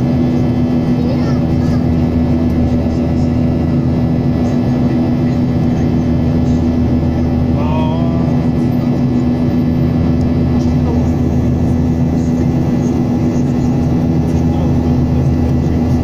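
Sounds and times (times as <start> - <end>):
constant low hum: 0.0 - 16.0
jet engine drone in cabin: 0.0 - 16.0
person speaking: 7.5 - 8.4.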